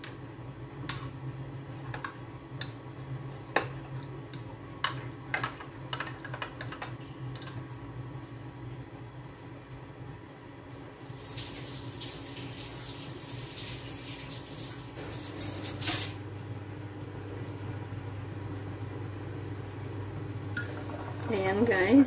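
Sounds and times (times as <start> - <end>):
liquid boiling in pot: 0.0 - 15.7, 18.8 - 22.0
steady low hum: 16.2 - 22.0.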